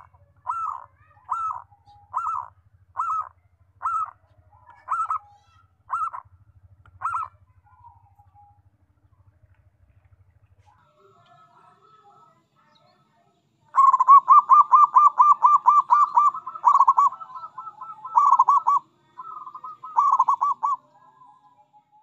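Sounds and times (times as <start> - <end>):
dove cooing in staccato notes: 0.0 - 8.5, 13.7 - 21.1.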